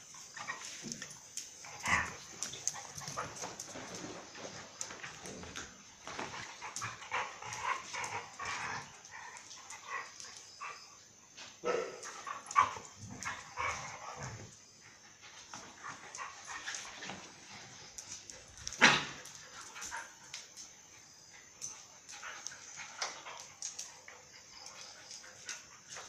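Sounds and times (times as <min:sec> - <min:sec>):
dogs barking and yipping: 0:00.0 - 0:05.1, 0:06.0 - 0:26.0
dogs scuffling: 0:00.1 - 0:10.7, 0:15.2 - 0:20.8.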